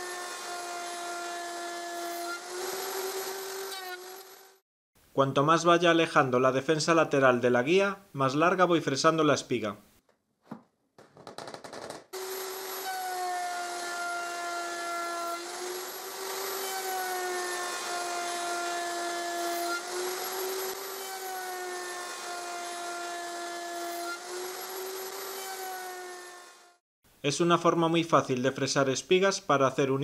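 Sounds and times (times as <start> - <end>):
router whining: 0.0 - 4.6, 12.2 - 26.7.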